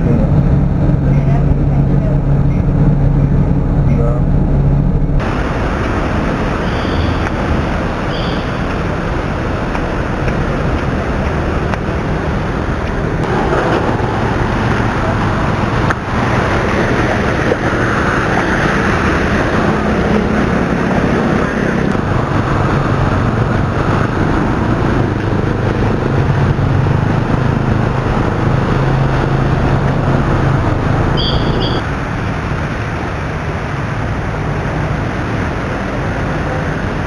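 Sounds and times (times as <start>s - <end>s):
vehicle engines running: 0.0s - 37.0s
steady wash of water noise: 5.2s - 31.2s, 31.8s - 37.0s
brief high tone: 31.2s - 31.8s.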